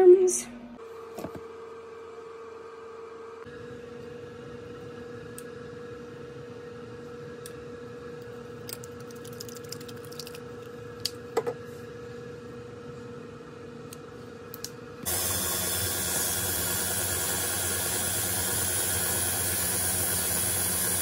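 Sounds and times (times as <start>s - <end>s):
stand mixer motor hum: 15.0s - 21.0s.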